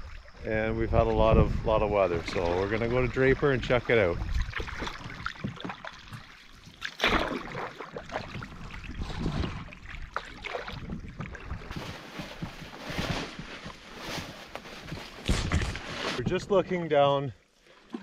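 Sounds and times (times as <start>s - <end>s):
paddle splashing in water: 1.9s - 12.8s.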